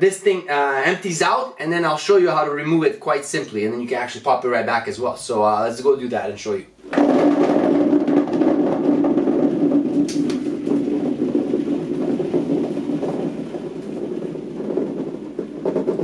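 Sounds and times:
foam balls pouring into plastic bin: 0:06.9 - 0:16.0.

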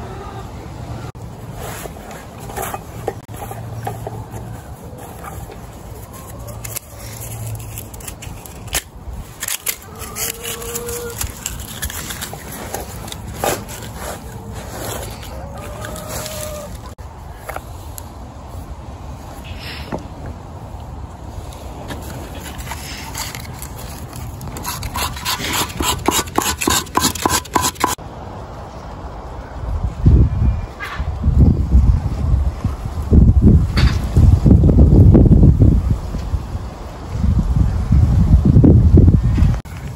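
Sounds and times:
outdoor background noise: 0:00.0 - 0:39.9
knife scraping bark: 0:01.5 - 0:16.8, 0:22.1 - 0:28.0.

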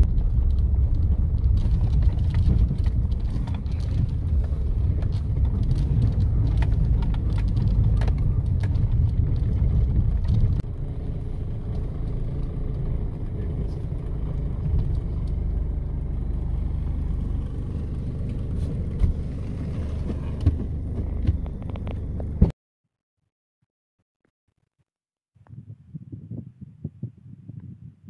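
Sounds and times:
knocks and rattles over bumps: 0:00.0 - 0:10.9, 0:17.4 - 0:22.5
car engine and tyres rumbling: 0:00.0 - 0:22.6.

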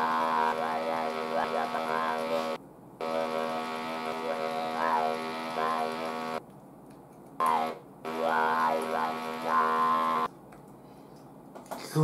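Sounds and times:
electrolarynx buzzing speech: 0:00.0 - 0:06.4, 0:07.4 - 0:10.3.

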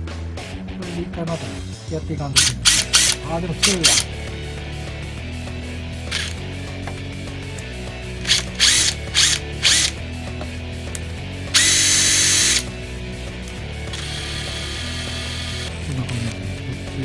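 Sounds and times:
impact driver motor whine: 0:02.4 - 0:04.1, 0:06.1 - 0:06.4, 0:08.2 - 0:10.0, 0:11.5 - 0:12.7, 0:13.9 - 0:15.8.

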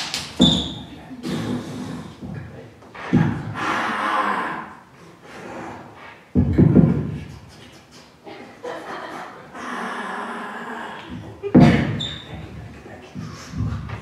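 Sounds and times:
person making breathy mouth noises: 0:01.1 - 0:02.3, 0:07.0 - 0:08.3.

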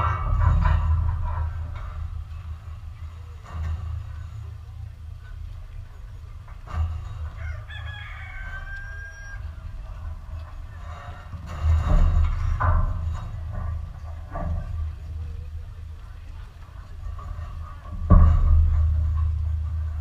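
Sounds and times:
steady low rumble: 0:00.0 - 0:20.0
rooster crowing: 0:07.3 - 0:09.6.

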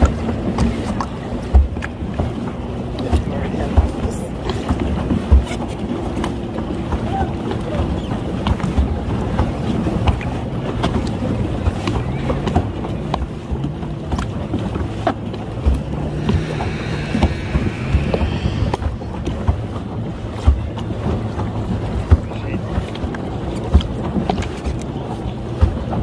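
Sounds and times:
low hum: 0:14.9 - 0:20.4.

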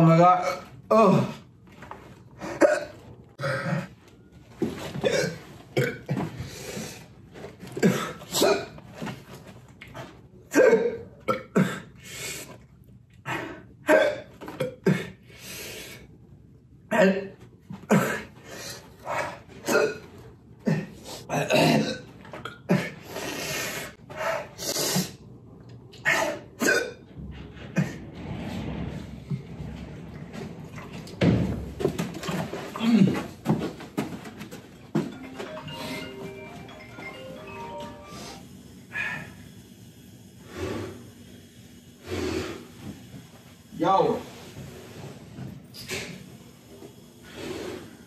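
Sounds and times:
man coughing: 0:02.4 - 0:03.9, 0:04.9 - 0:06.4, 0:07.8 - 0:08.8, 0:10.5 - 0:12.0, 0:13.8 - 0:15.2, 0:16.9 - 0:18.4, 0:19.6 - 0:23.0, 0:26.1 - 0:27.0.

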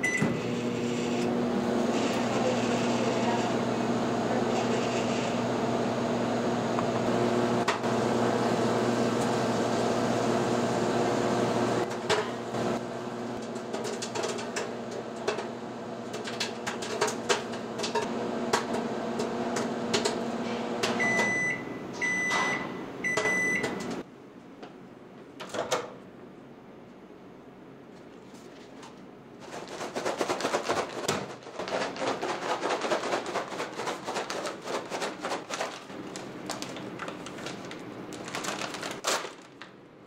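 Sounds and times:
microwave oven humming: 0:00.0 - 0:24.1.

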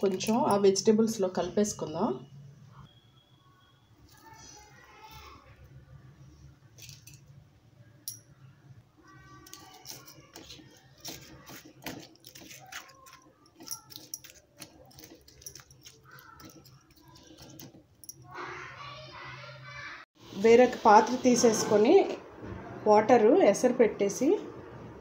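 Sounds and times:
spoon scraping ceramic bowl: 0:09.5 - 0:17.8.

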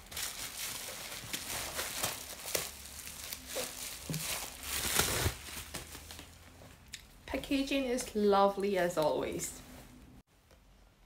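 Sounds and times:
bubble-wrap mailer crinkling: 0:00.0 - 0:06.3.

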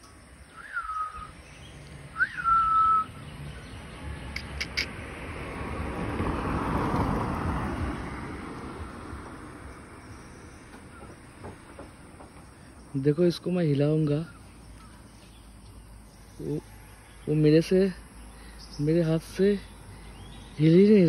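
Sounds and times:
short whistled notes: 0:00.6 - 0:01.3, 0:02.2 - 0:03.2.

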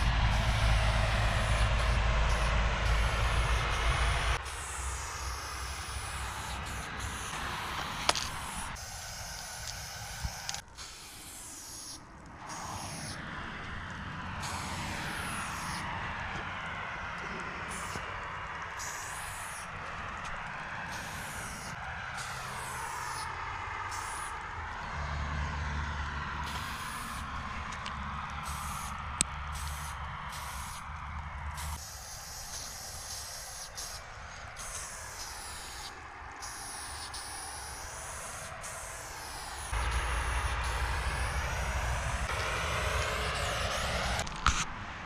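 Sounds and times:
low rumble: 0:00.0 - 0:04.5, 0:39.8 - 0:44.2
spray paint can hissing: 0:00.0 - 0:13.2, 0:14.4 - 0:15.9, 0:17.2 - 0:18.1, 0:18.7 - 0:24.5, 0:26.4 - 0:44.6.

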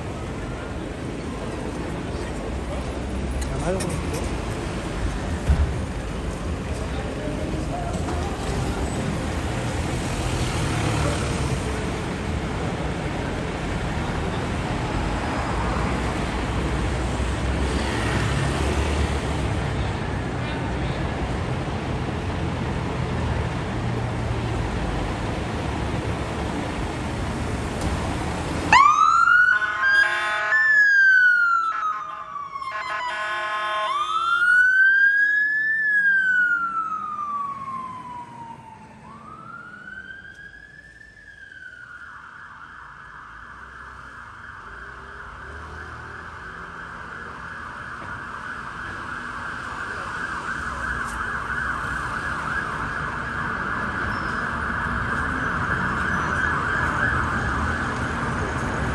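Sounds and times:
fast siren yelp: 0:28.7 - 0:33.1, 0:33.8 - 0:58.2
fire engine siren wailing: 0:28.7 - 0:58.9
air horn blasts: 0:29.6 - 0:30.6, 0:31.6 - 0:34.1.

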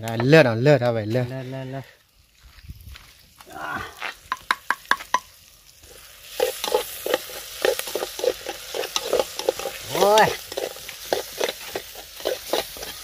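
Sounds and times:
greens sizzling in a pan: 0:01.2 - 0:13.0
spoon scraping metal pan: 0:06.3 - 0:13.0.

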